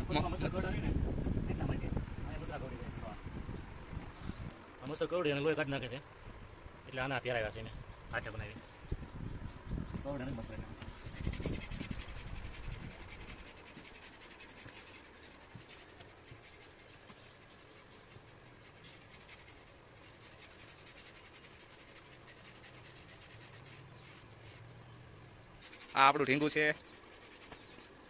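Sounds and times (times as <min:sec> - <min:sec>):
currycomb scratching horse coat: 0:10.3 - 0:24.8, 0:25.6 - 0:28.0.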